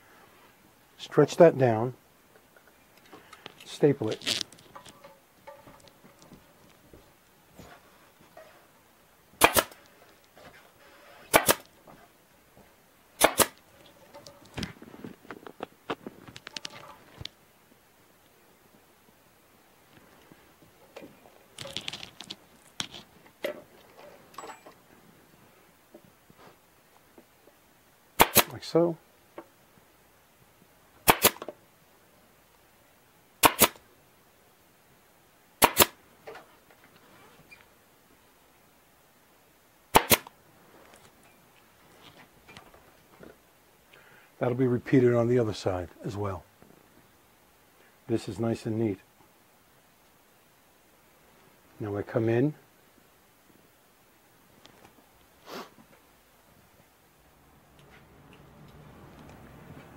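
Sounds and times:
faint handling rustle: 0:02.4 - 0:08.8, 0:13.6 - 0:27.6, 0:36.2 - 0:38.3, 0:40.4 - 0:49.4
clicks and handling noises: 0:02.5 - 0:08.7, 0:13.6 - 0:17.4, 0:19.9 - 0:24.9
staple gun firing: 0:09.4 - 0:09.8, 0:11.3 - 0:11.7, 0:13.2 - 0:13.6, 0:28.2 - 0:28.5, 0:31.1 - 0:31.5, 0:33.4 - 0:33.8, 0:35.6 - 0:36.0, 0:40.0 - 0:40.3.

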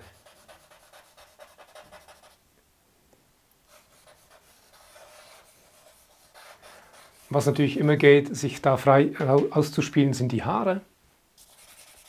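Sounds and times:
charcoal scratching on paper: 0:00.0 - 0:02.4, 0:03.7 - 0:07.5, 0:11.4 - 0:12.0.

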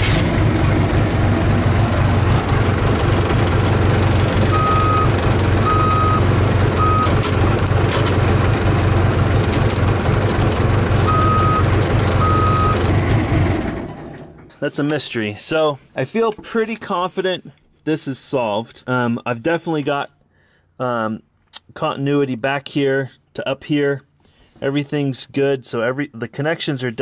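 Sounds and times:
backhoe engine running: 0:00.0 - 0:14.6
reverse alarm beeps: 0:04.5 - 0:06.2, 0:06.8 - 0:07.1, 0:11.1 - 0:12.8.

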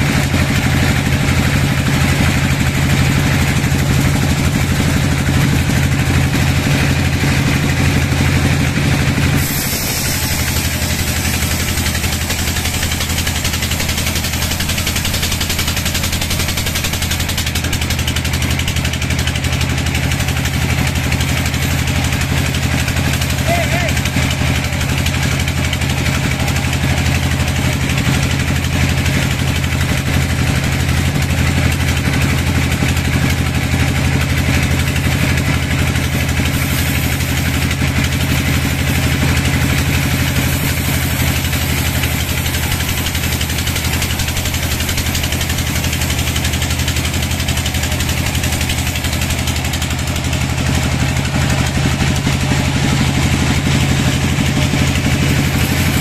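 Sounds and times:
band saw cutting log: 0:00.0 - 0:56.0.

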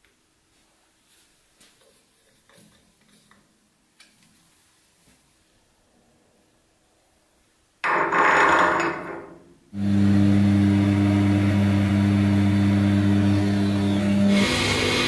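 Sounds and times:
band saw cutting metal: 0:09.8 - 0:15.0.

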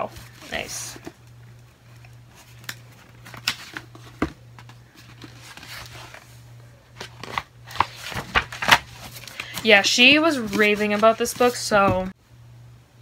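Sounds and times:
low steady hum: 0:00.0 - 0:13.0
paper rustling: 0:01.8 - 0:06.3, 0:06.9 - 0:12.1.

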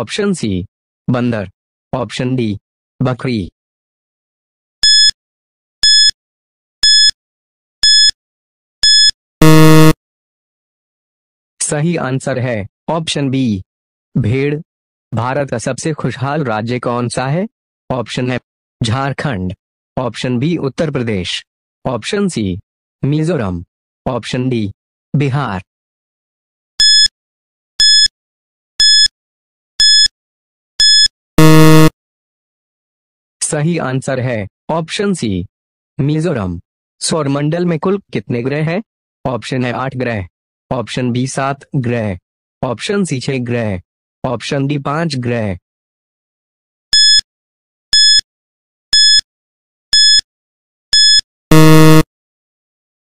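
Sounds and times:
short high beeps: 0:04.8 - 0:05.1, 0:05.8 - 0:06.1, 0:06.8 - 0:07.1, 0:07.8 - 0:08.1, 0:08.8 - 0:10.0, 0:26.8 - 0:27.1, 0:27.8 - 0:28.1, 0:28.8 - 0:29.1, 0:29.8 - 0:30.1, 0:30.8 - 0:31.9, 0:47.0 - 0:47.2, 0:48.0 - 0:48.2, 0:49.0 - 0:49.2, 0:50.0 - 0:50.2, 0:51.0 - 0:52.0
low electronic buzzer: 0:08.8 - 0:10.0, 0:30.8 - 0:31.9, 0:51.0 - 0:52.1.

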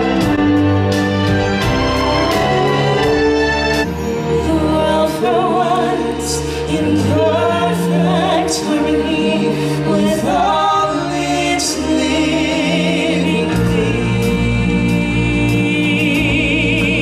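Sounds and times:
amplified musical backing: 0:00.0 - 0:17.0
singers with wide vibrato: 0:03.8 - 0:17.0.

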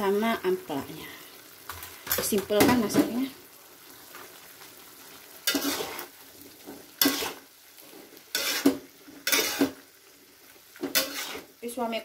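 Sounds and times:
soft sizzle: 0:00.0 - 0:12.0
metal spatula scraping wok: 0:05.4 - 0:09.8, 0:10.8 - 0:11.6.

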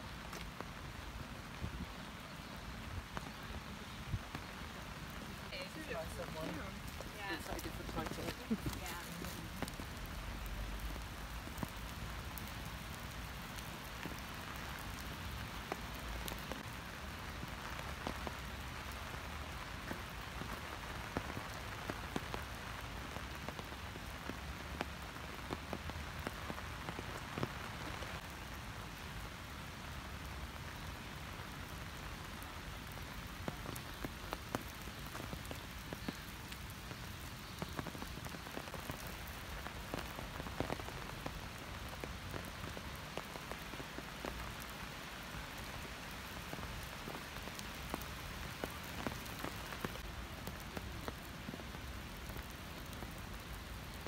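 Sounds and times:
raindrops ticking close by: 0:00.0 - 0:54.0
steady rain: 0:00.0 - 0:54.0.

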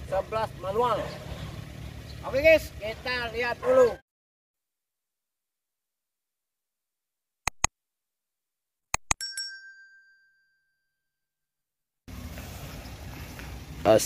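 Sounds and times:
mouse clicks: 0:07.5 - 0:07.7, 0:09.0 - 0:09.2
bright notification bell ding: 0:09.1 - 0:10.7.

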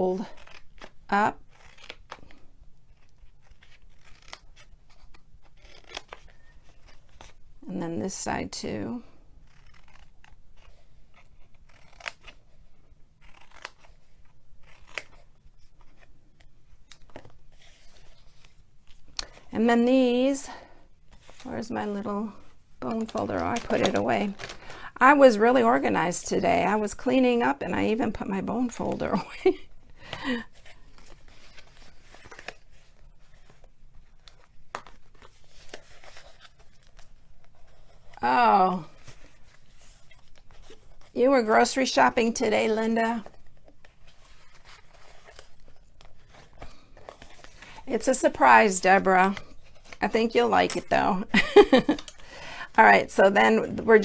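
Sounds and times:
paper rustling: 0:21.1 - 0:25.2, 0:30.0 - 0:52.6.

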